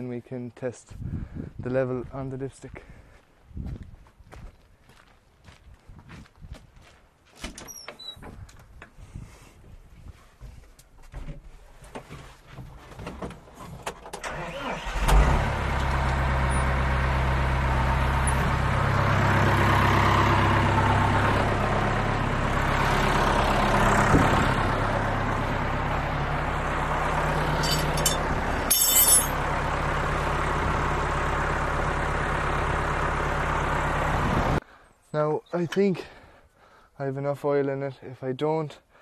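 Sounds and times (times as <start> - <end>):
tractor diesel engine idling: 14.2 - 34.6.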